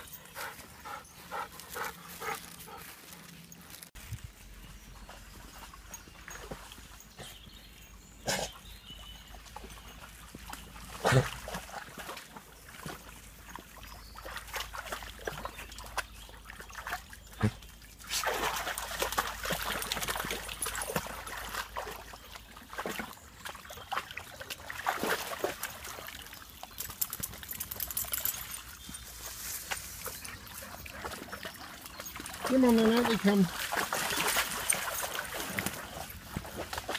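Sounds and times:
dogs splashing in stream: 0:00.0 - 0:36.9
water trickling: 0:08.9 - 0:36.9.

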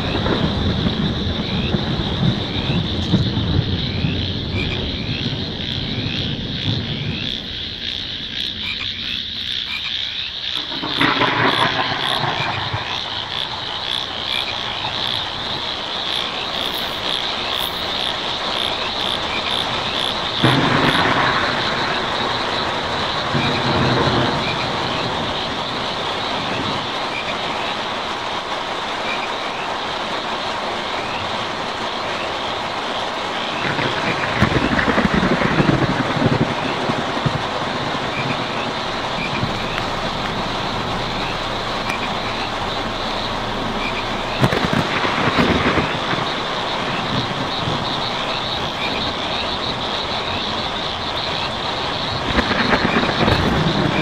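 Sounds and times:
frogs croaking: 0:00.0 - 0:54.0
rain on a tin roof: 0:00.0 - 0:54.0
low rumble: 0:38.3 - 0:51.0.

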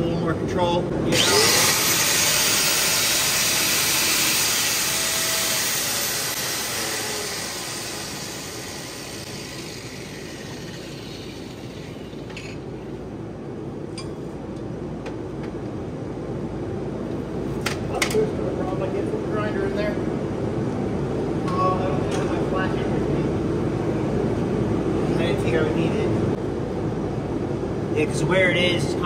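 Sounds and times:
angle grinder grinding steel: 0:01.1 - 0:12.6.

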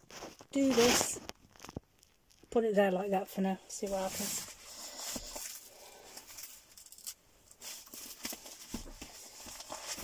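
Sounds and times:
gear rustling: 0:04.1 - 0:10.0.

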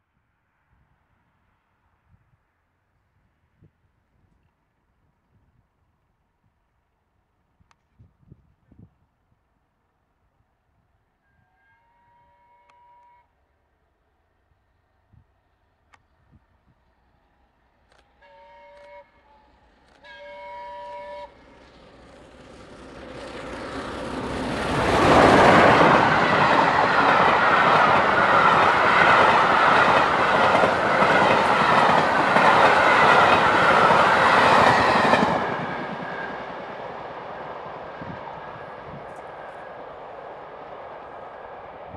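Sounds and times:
steam whistle: 0:11.3 - 0:13.3, 0:18.2 - 0:19.4, 0:20.0 - 0:21.4
train rushing past: 0:18.3 - 0:41.9.

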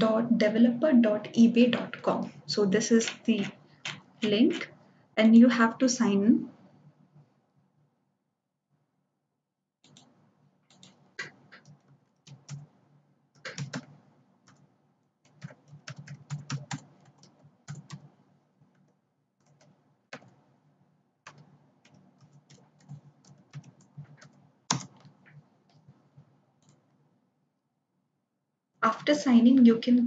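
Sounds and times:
typing on computer keyboard: 0:09.8 - 0:12.7, 0:13.4 - 0:18.1, 0:18.7 - 0:20.4, 0:21.2 - 0:26.0, 0:26.6 - 0:26.8.

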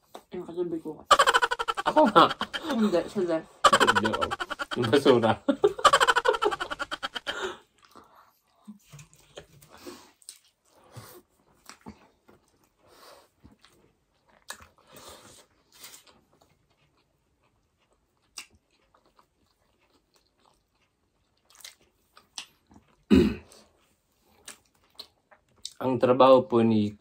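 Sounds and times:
wet chewing and lip smacks: 0:07.8 - 0:10.8, 0:11.4 - 0:12.8, 0:13.4 - 0:25.8.

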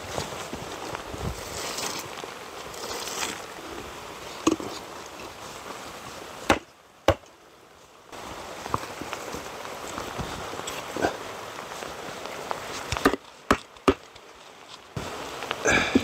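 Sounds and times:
stone slabs knocking: 0:12.9 - 0:14.0.

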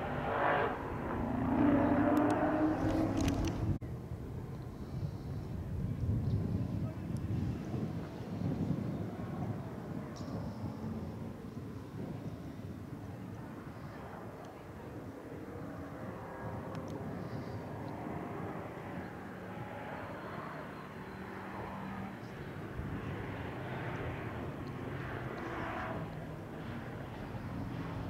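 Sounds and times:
distant car engine running: 0:00.0 - 0:03.8.

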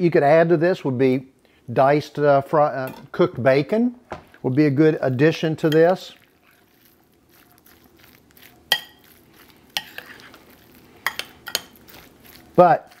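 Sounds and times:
spoon scraping in bowl: 0:05.6 - 0:13.0
spoon clinking against bowl: 0:08.7 - 0:09.1, 0:11.0 - 0:11.8.

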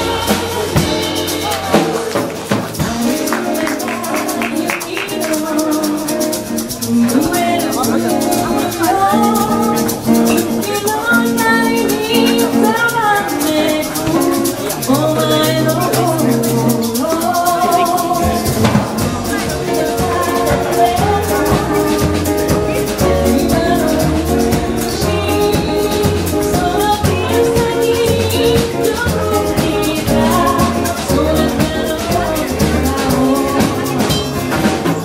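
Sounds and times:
nylon-string guitar: 0:00.0 - 0:35.0
shaker rhythm: 0:00.0 - 0:35.0
low bass notes: 0:14.1 - 0:35.0.

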